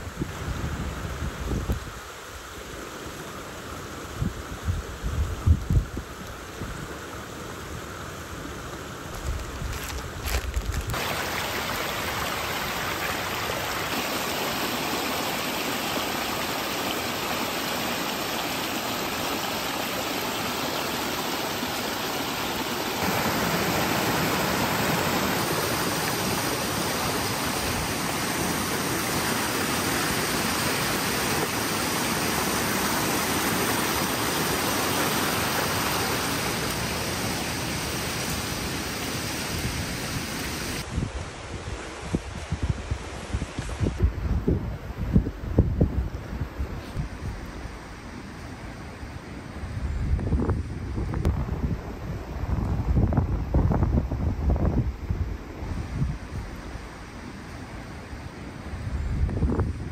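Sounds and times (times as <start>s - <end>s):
stream splashing over rocks: 9.1s - 40.9s.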